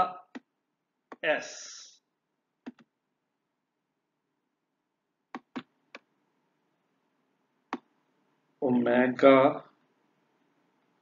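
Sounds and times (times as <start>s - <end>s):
stylus clicking on tablet: 2.6s - 2.9s, 5.3s - 6.1s.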